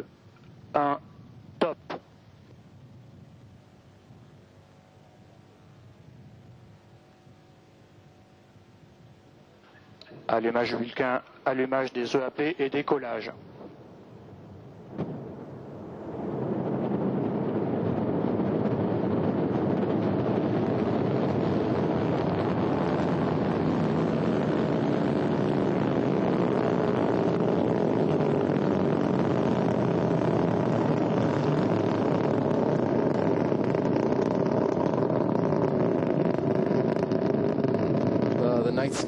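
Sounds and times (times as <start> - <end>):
rocket engines roaring: 11.7 - 39.0.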